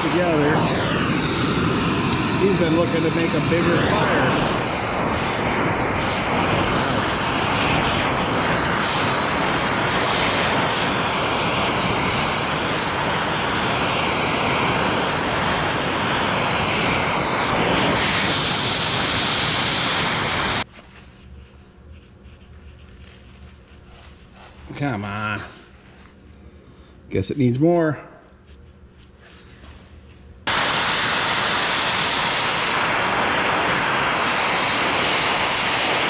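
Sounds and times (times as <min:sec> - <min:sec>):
gas torch flame hissing: 0:00.0 - 0:20.7, 0:30.4 - 0:36.0.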